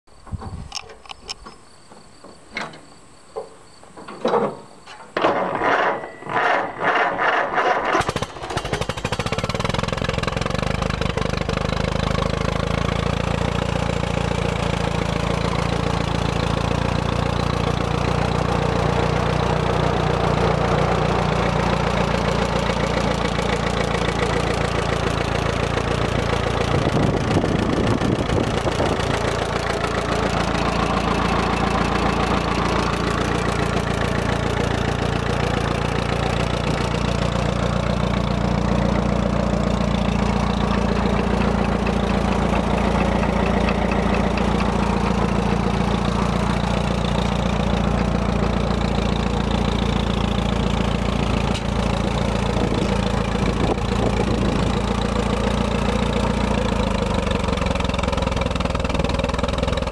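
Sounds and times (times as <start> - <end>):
tractor engine running: 3.8 - 59.9.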